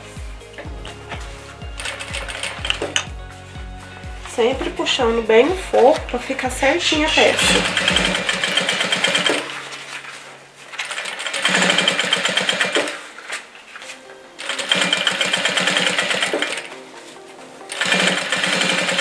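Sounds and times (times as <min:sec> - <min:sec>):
sewing machine stitching: 0:07.3 - 0:09.6, 0:10.8 - 0:13.3, 0:14.4 - 0:16.7, 0:17.7 - 0:19.0.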